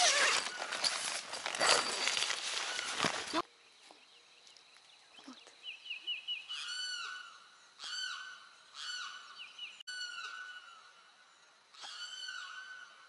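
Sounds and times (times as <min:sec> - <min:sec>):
peacock calling: 0:06.5 - 0:11.0, 0:11.7 - 0:13.0.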